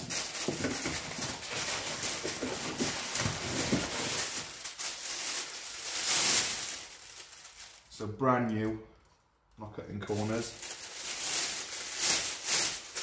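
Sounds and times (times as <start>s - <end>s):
plastic bag crinkling: 0.0s - 9.2s, 10.0s - 13.0s
cardboard box being opened: 0.4s - 4.3s.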